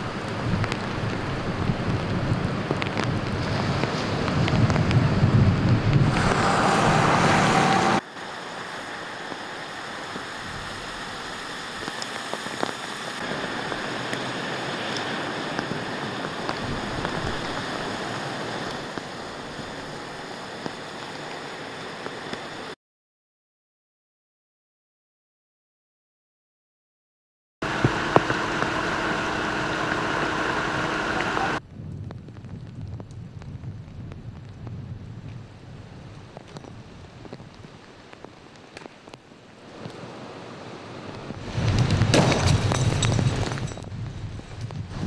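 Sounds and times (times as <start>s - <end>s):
heavy rain rushing: 0.0s - 22.8s, 27.6s - 45.0s
tyres spraying water: 6.0s - 22.8s, 27.6s - 31.6s.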